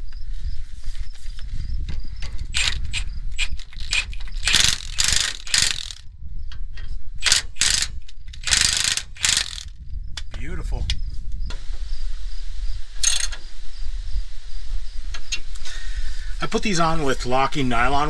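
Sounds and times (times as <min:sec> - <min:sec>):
impact wrench hammering: 0:02.5 - 0:06.0, 0:07.2 - 0:09.7.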